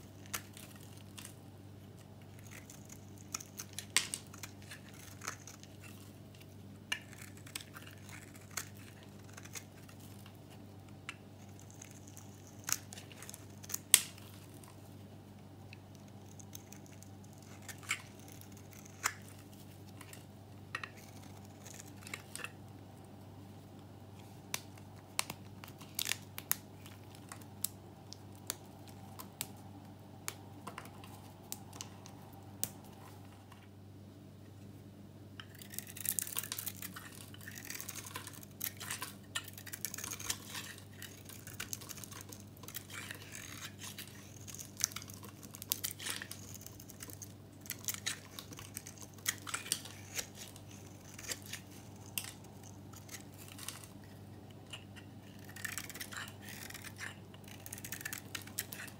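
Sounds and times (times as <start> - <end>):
knife crackling through soap: 0.0 - 14.8, 15.7 - 22.6, 35.4 - 58.9.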